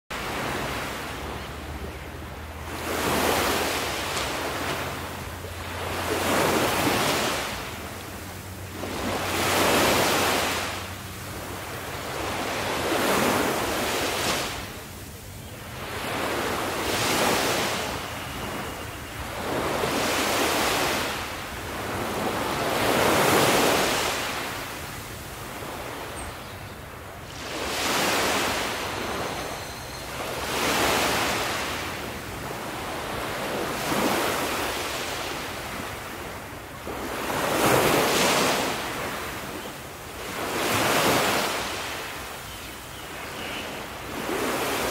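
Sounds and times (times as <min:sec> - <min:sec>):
small waves washing onto beach: 0:00.1 - 0:29.5, 0:30.1 - 0:44.9.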